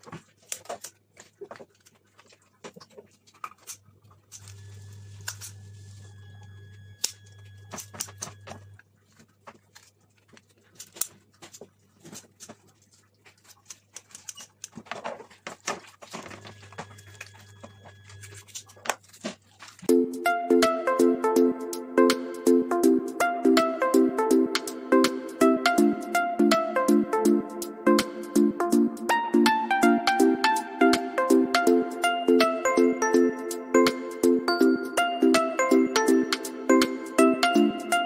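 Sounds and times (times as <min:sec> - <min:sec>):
low steady hum: 0:00.1 - 0:19.9
scissors and knife cutting fish: 0:00.3 - 0:02.0, 0:09.2 - 0:16.2.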